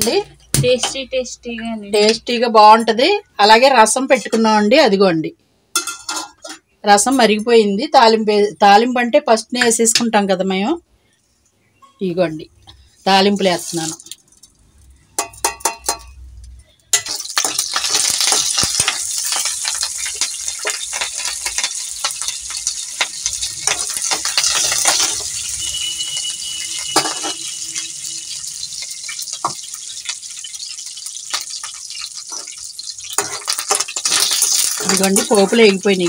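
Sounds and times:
crackling and popping in oil: 0.0 - 2.9, 12.6 - 36.0
spices sizzling in hot oil: 13.0 - 36.0.

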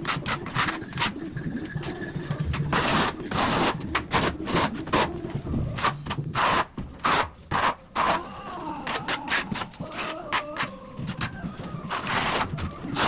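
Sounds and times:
trowel scraping tile adhesive: 2.6 - 8.2, 11.8 - 13.0.

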